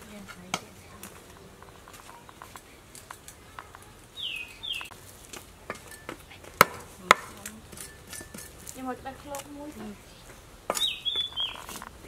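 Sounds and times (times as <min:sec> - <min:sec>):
cleaver chopping on wooden block: 0:06.6 - 0:08.5.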